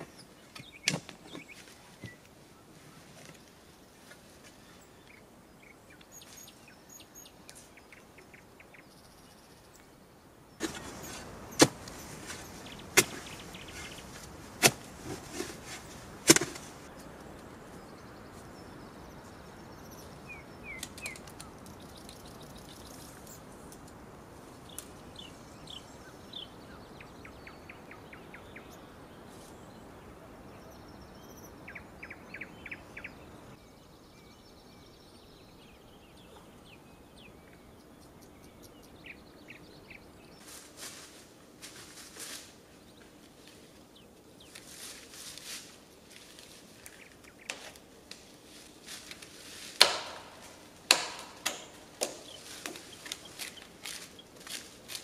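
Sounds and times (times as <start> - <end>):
bird chirping: 0.0 - 3.5, 4.6 - 14.4, 15.3 - 23.6, 24.6 - 40.4
sharp knocks: 49.8 - 52.8.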